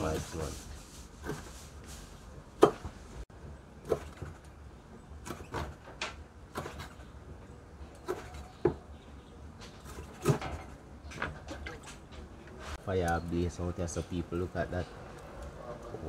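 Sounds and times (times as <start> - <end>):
knife chopping on wooden board: 1.2 - 1.5, 2.6 - 3.0, 5.2 - 7.0, 8.0 - 8.8, 9.8 - 10.8.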